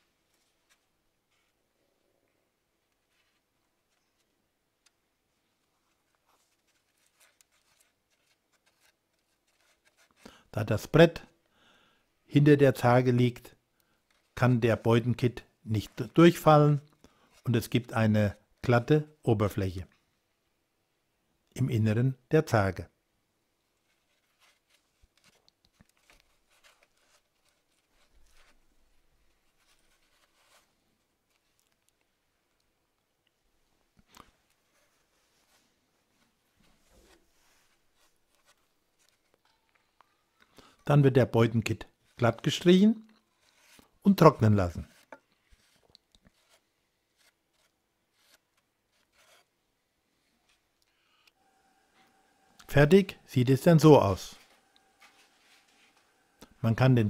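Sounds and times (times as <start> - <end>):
putty knife scraping: 44.8 - 49.6.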